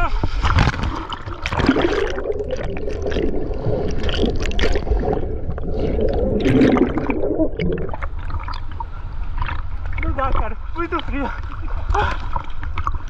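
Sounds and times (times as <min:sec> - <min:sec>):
underwater gurgling and bubbling: 0:00.0 - 0:10.0
small underwater crackles: 0:00.2 - 0:13.0.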